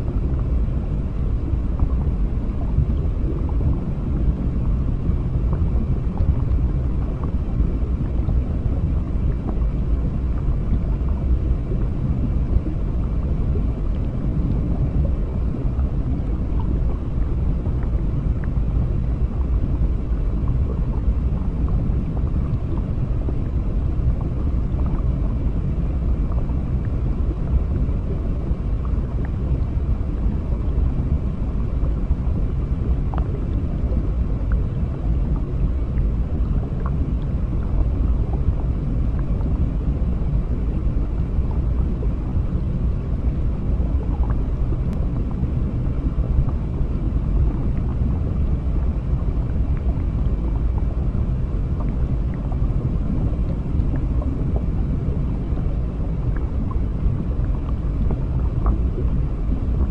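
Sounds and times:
underwater low rumble: 0.0 - 59.9.

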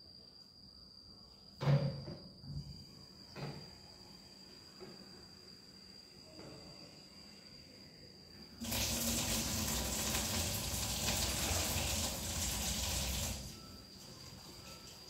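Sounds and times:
water gushing into a bucket: 8.6 - 13.6.

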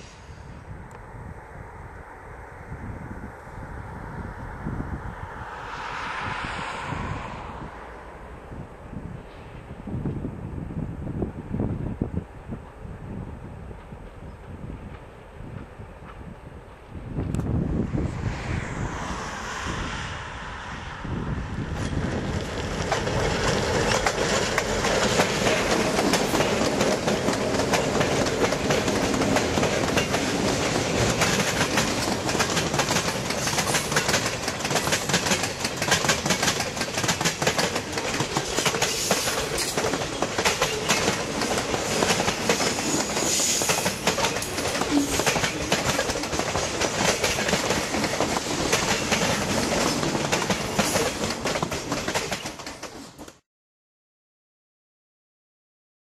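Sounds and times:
diesel locomotives working: 0.0 - 53.1
train wheels clickety-clack: 21.8 - 53.4.

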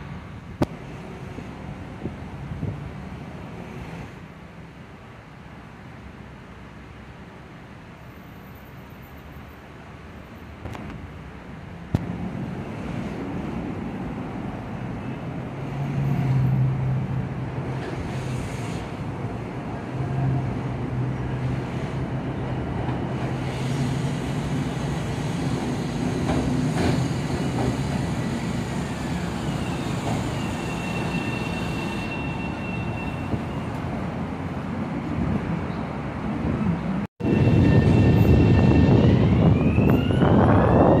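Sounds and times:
electric train rumbling: 9.6 - 41.0
thin high squeal: 29.4 - 33.7.

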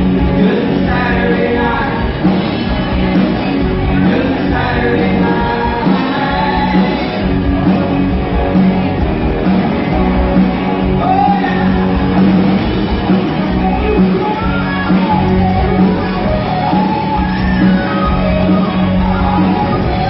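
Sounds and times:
lead vocal singing: 0.0 - 7.4, 11.0 - 12.3
drum kit: 0.0 - 20.0
electric guitars: 0.0 - 20.0.

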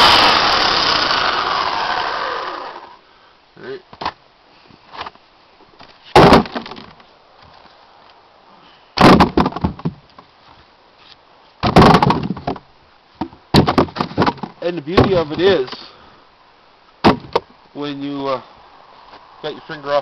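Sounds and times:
firewood logs clattering: 5.8 - 7.7, 9.0 - 10.6, 11.6 - 15.9, 17.0 - 17.5.

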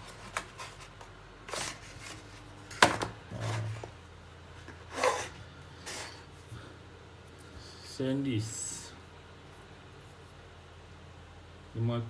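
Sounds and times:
plastic tray scraping: 1.5 - 4.0.

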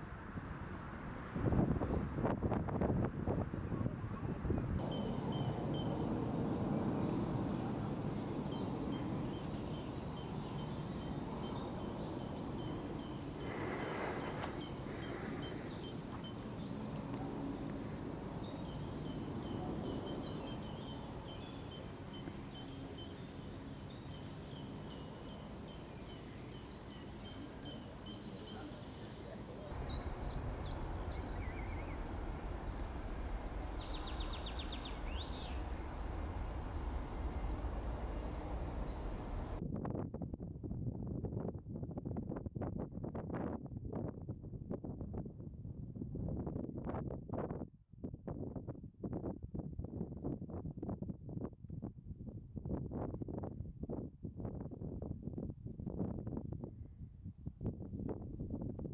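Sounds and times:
low background rumble: 4.0 - 39.8
small birds chirping: 4.8 - 39.6.

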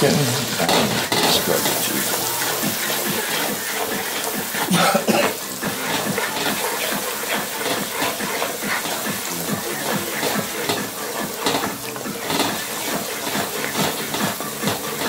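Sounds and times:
watery noise with crackles: 0.0 - 15.0.

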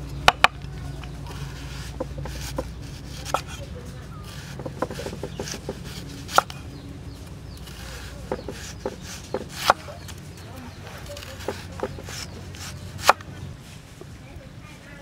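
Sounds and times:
knife chopping on wooden board: 0.3 - 0.6, 1.5 - 3.6, 4.3 - 6.6, 7.6 - 10.2, 11.1 - 13.3.

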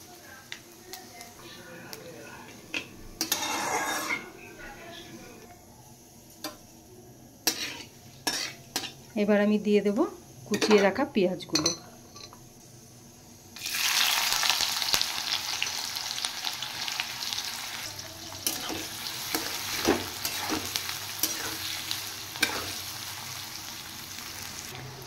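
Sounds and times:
onions sizzling in hot oil: 0.0 - 4.2, 7.4 - 11.7, 12.5 - 25.0
spatula scraping a pan: 3.2 - 4.3, 7.4 - 9.0.

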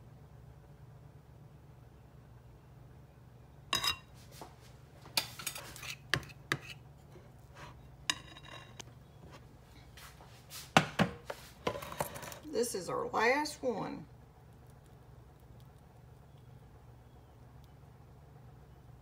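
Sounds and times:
metal spoon scraping glass bowl: 5.4 - 6.8, 8.1 - 8.8.

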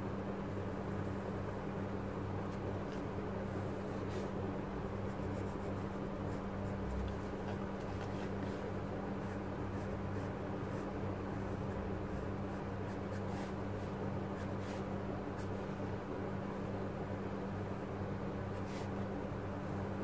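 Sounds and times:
steady low hum: 0.0 - 20.0
pencil sketching on paper: 3.8 - 7.4, 8.0 - 15.7.

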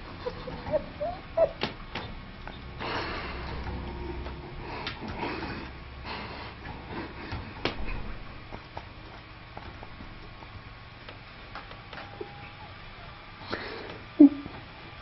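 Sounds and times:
kitten squeaks: 0.2 - 1.6.

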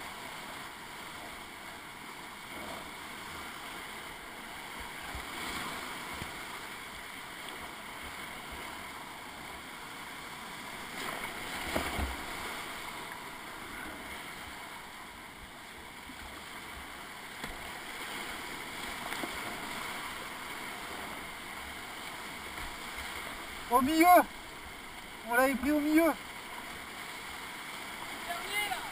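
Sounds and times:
waves splashing against boat: 17.4 - 28.9
whitewater rapids rushing: 17.7 - 28.9.

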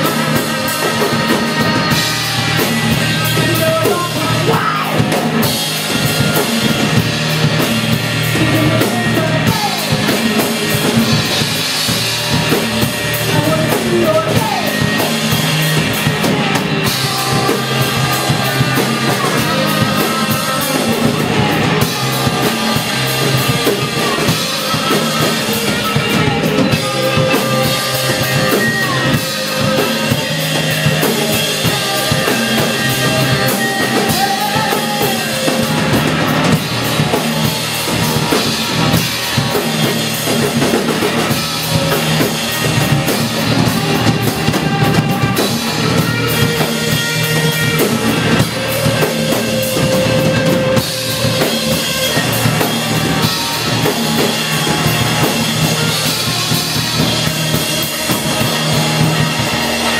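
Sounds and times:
drum kit: 0.0 - 59.9
electric guitar: 0.0 - 59.9
live rock band playing: 0.0 - 59.9.

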